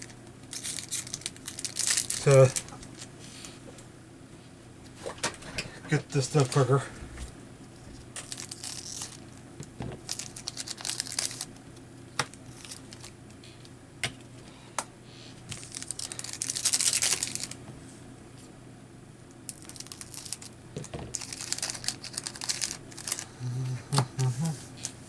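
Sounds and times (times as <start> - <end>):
foil wrappers crinkling: 0.0 - 3.5, 7.9 - 9.4, 10.0 - 11.6, 12.3 - 13.2, 15.5 - 17.6, 19.5 - 24.5.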